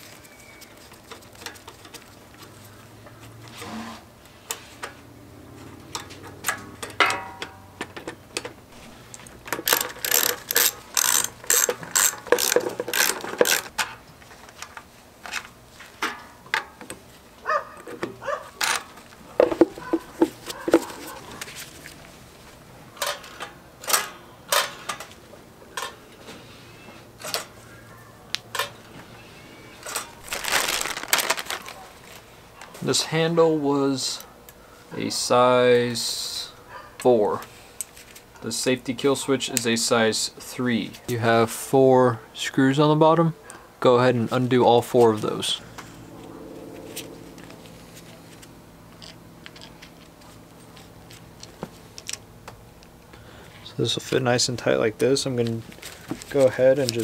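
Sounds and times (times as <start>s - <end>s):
hand tools clicking and rattling: 5.9s - 14.0s, 18.6s - 21.4s, 48.4s - 52.2s.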